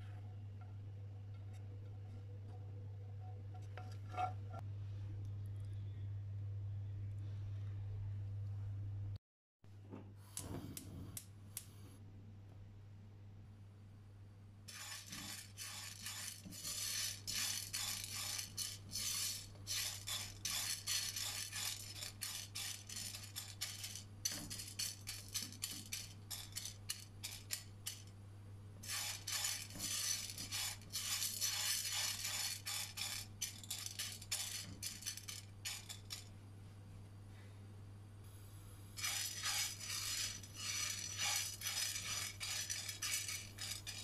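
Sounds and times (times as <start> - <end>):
popcorn kernels rattling in a pot: 14.7 - 28.1, 28.8 - 36.3, 39.0 - 44.0.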